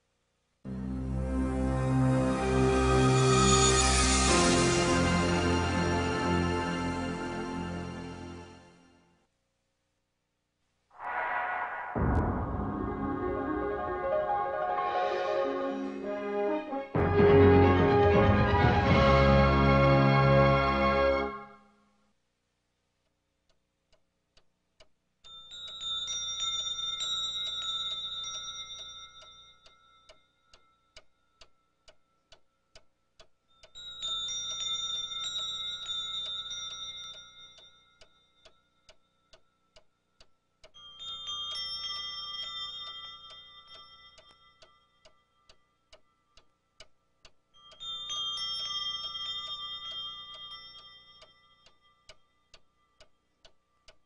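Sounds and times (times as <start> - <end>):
clock ticking: 23.0 - 25.9, 27.4 - 41.7, 42.9 - 54.0.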